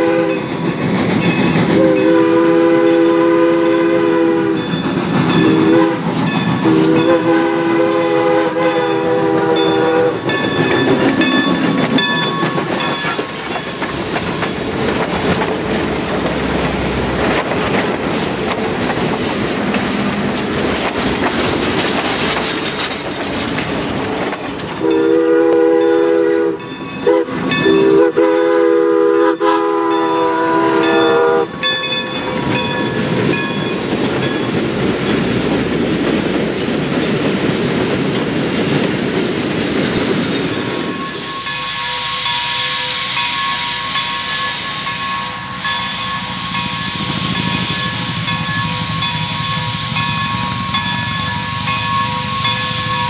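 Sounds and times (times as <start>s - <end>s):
steam locomotive chime whistle: 0.0s - 14.4s, 24.8s - 34.5s, 40.8s - 53.0s
train wheels clattering on rails: 0.0s - 28.4s, 29.2s - 53.0s.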